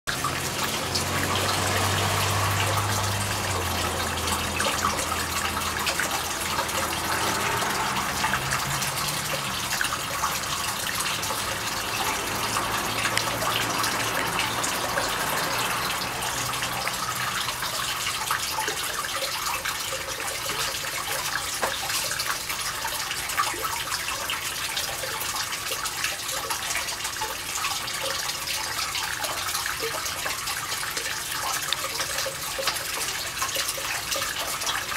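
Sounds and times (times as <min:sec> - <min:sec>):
running water splashing: 0:00.1 - 0:34.9.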